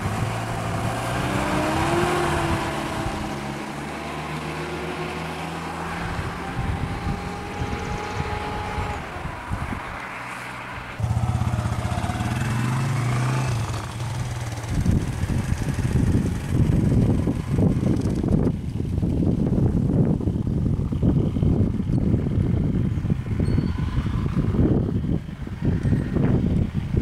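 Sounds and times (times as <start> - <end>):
louder engine hum: 0.0 - 26.7
vehicle engines idling: 8.8 - 21.6.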